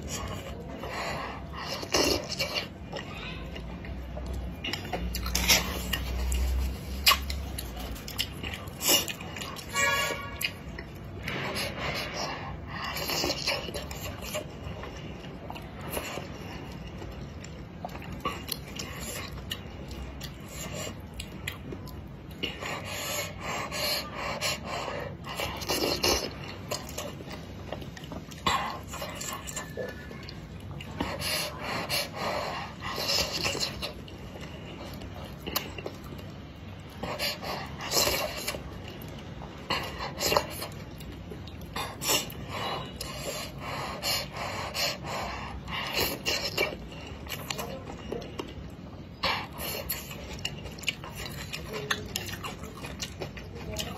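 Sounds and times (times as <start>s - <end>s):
chewing: 0.0s - 53.9s.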